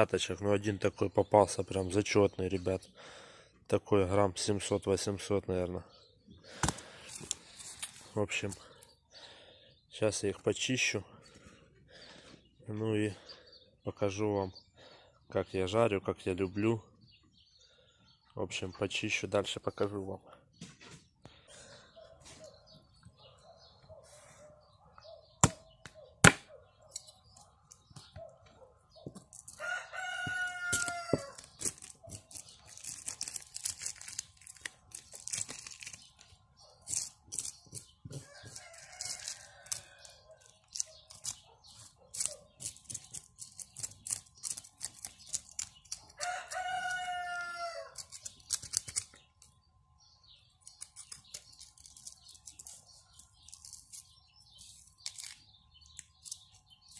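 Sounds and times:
rooster crowing: 29.5 - 31.4, 38.2 - 40.4, 46.2 - 48.0
knife scraping fish scales: 36.8 - 46.2, 47.9 - 49.2, 50.6 - 56.9.

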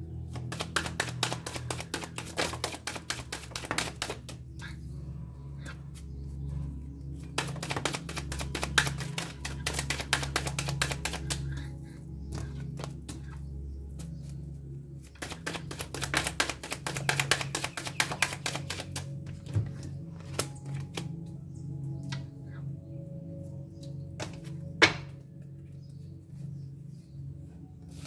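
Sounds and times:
cards being shuffled: 0.3 - 4.4, 7.2 - 11.5, 12.3 - 13.3, 15.1 - 21.2.

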